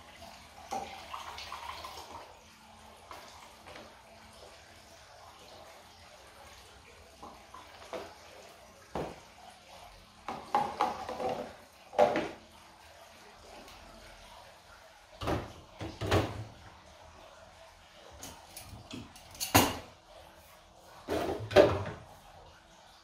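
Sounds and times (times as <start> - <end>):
container and glass clunking on countertop: 10.3 - 12.4, 18.2 - 19.9.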